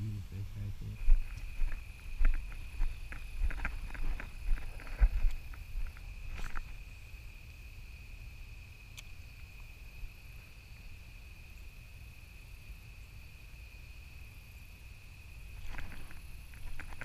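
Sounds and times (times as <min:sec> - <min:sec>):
crickets trilling: 0:00.0 - 0:17.0
clicks and rustles: 0:01.2 - 0:06.8, 0:15.5 - 0:17.0.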